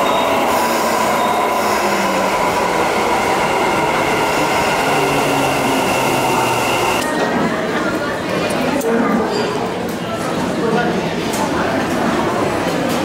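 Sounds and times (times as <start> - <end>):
electric train rumbling and whining: 0.0 - 7.2.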